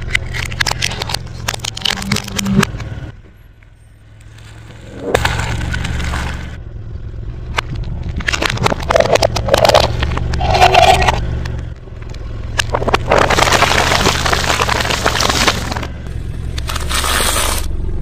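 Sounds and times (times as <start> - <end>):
plastic and food crunching: 0.0 - 2.7, 7.6 - 11.2, 12.6 - 15.9
car rumble: 0.0 - 18.0.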